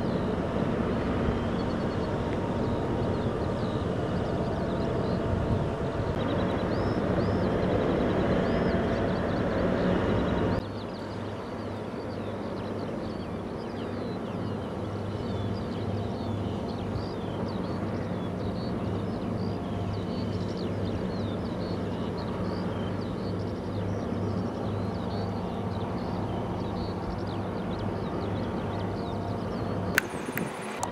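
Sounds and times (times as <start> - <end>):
machinery low drone: 0.0 - 30.9.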